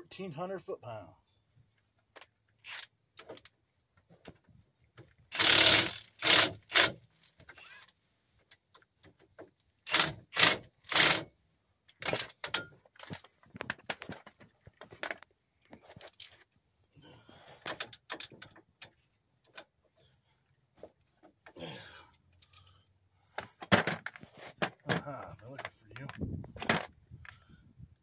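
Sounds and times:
impact wrench bursts: 5.3 - 7.8, 9.8 - 11.3
tools clinking and knocking: 11.9 - 16.4, 17.6 - 19.7, 23.4 - 27.4.

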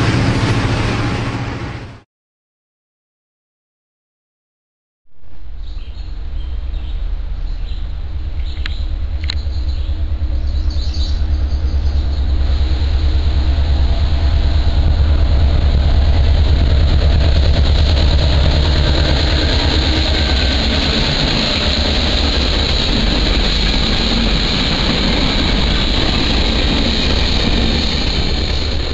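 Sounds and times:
diesel locomotive rumbling: 0.0 - 2.0, 5.7 - 28.9.

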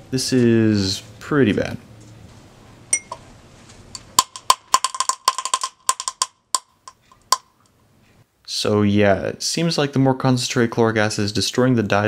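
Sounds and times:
sharp crackling pops: 3.9 - 7.6.

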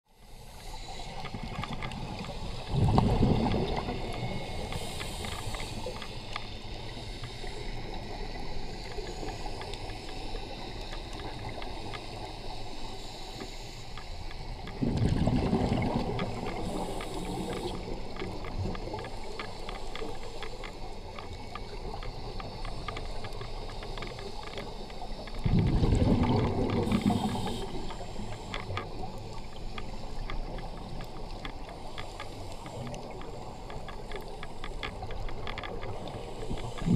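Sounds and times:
crackle of faint clicks: 0.2 - 36.9
exhaled bubbles underwater: 1.3 - 4.9, 14.8 - 19.0, 25.2 - 28.1, 35.8 - 36.9
hissing inhalations: 3.8 - 14.5, 16.3 - 20.9, 26.7 - 30.9.

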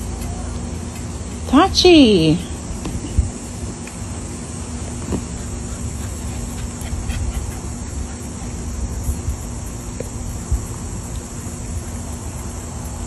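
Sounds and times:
faint steady hum: 0.0 - 13.0
insect chirring: 1.9 - 13.0.

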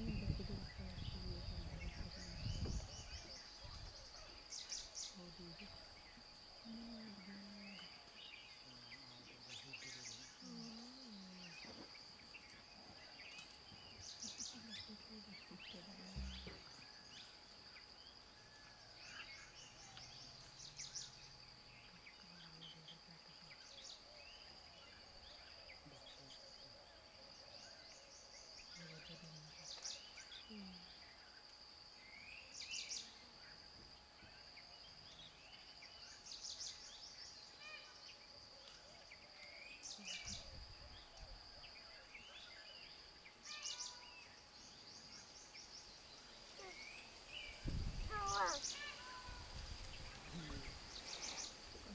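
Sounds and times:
faint low voices: 0.0 - 17.1, 21.7 - 27.9, 28.6 - 31.2, 46.5 - 51.9
high-pitched insect drone: 39.5 - 45.7, 46.4 - 51.9
bird chirps and trills: 46.6 - 49.4.

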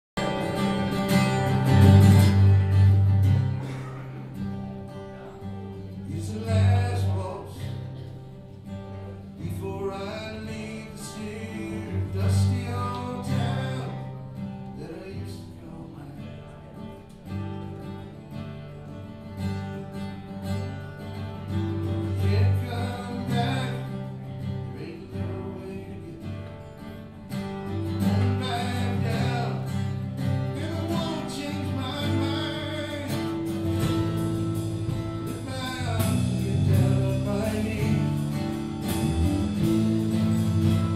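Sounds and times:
acoustic guitar: 0.0 - 40.9
electric bass guitar: 0.2 - 4.8, 27.7 - 40.9
electric guitar: 0.2 - 40.9.

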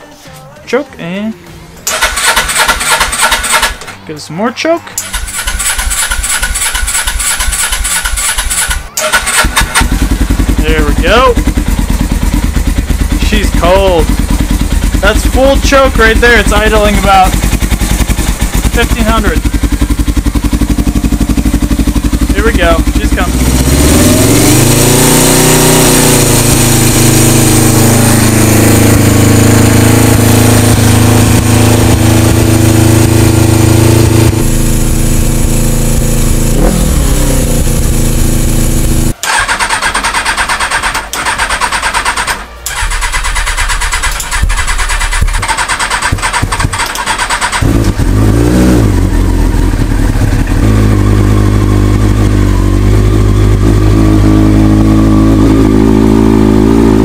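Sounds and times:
electric starter cranking: 1.8 - 4.0, 5.0 - 10.5, 39.2 - 48.9
motorcycle engine running: 5.0 - 57.0.

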